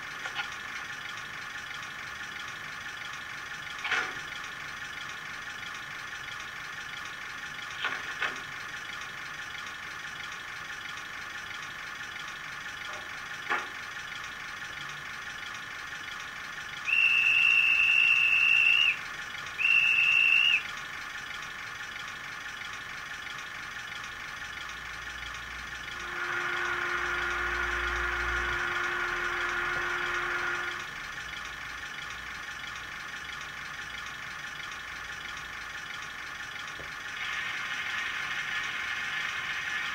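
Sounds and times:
diesel engine idling from small speaker: 0:00.0 - 0:39.9
whistle blasts: 0:16.8 - 0:19.0, 0:19.6 - 0:20.7, 0:26.0 - 0:30.8
steady low tone: 0:25.9 - 0:31.0.

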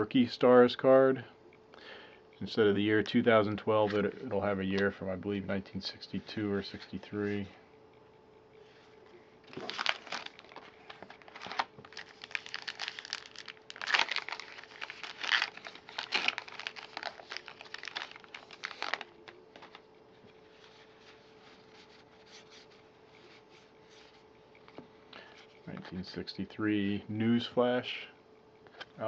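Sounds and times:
wrapper tearing and crinkling: 0:09.5 - 0:19.8
cards being handled: 0:09.5 - 0:24.8.

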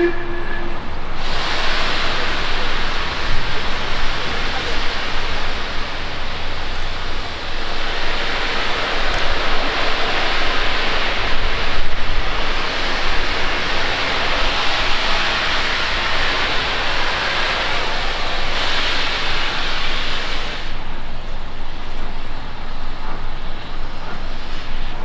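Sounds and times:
steam locomotive hissing: 0:00.0 - 0:25.0.

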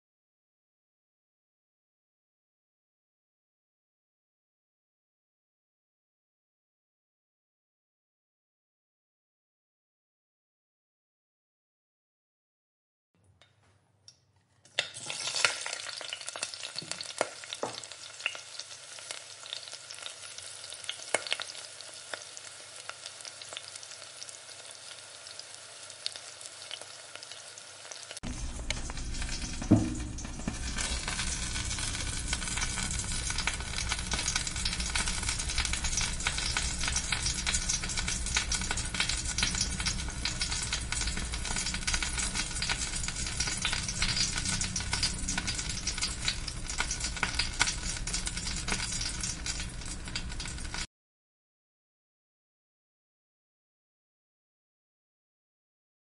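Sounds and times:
oil sizzling in frying pan: 0:14.8 - 0:50.9
thump: 0:29.6 - 0:30.6.

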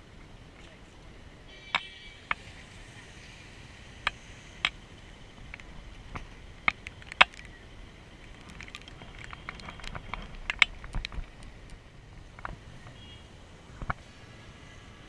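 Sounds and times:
raindrops ticking on camera: 0:08.2 - 0:12.6.

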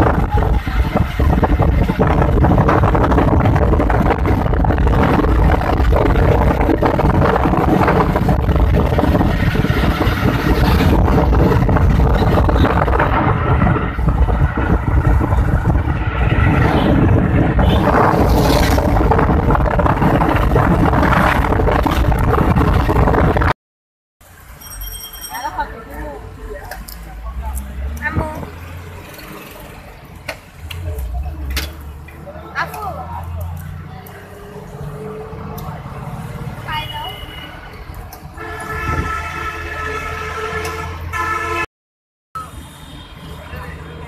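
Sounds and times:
air rushing past car window: 0:00.0 - 0:23.6
engine and tyre hum: 0:00.0 - 0:23.6, 0:24.2 - 0:41.7.

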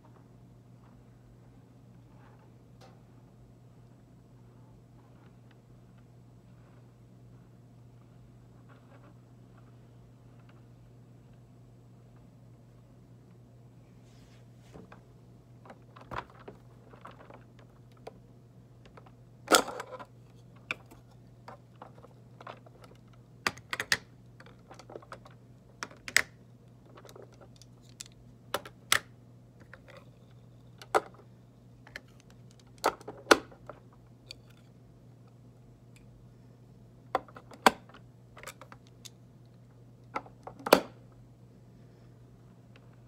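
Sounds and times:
steady low hum: 0:00.0 - 0:43.0
clicks and taps of plastic pieces: 0:18.8 - 0:30.1.

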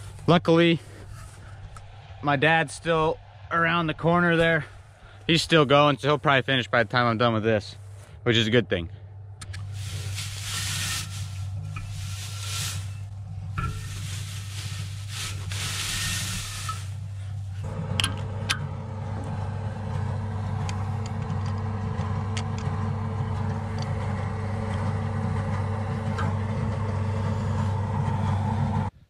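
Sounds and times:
tractor engine idling: 0:00.0 - 0:29.0
hay rustling: 0:09.6 - 0:17.7.

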